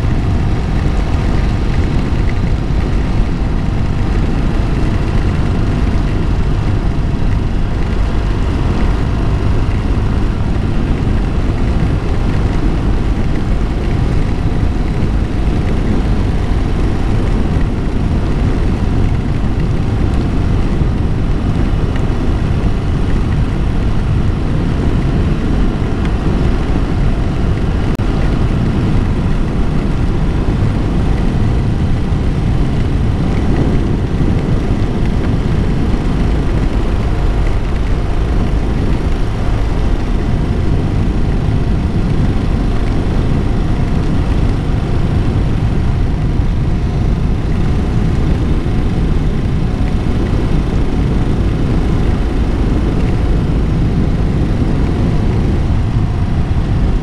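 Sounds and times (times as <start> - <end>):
motorcycle engine cruising: 0.0 - 57.0
wind noise on microphone: 0.0 - 57.0.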